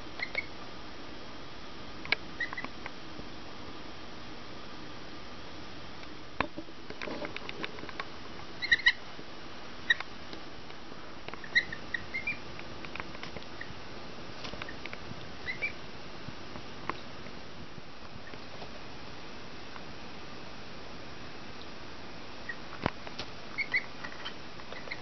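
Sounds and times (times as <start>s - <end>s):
goslings peeping: 0.2s - 0.6s, 2.4s - 2.8s, 8.6s - 9.1s, 9.8s - 10.1s, 11.3s - 12.6s, 14.5s - 15.8s, 22.4s - 22.7s, 23.5s - 25.0s.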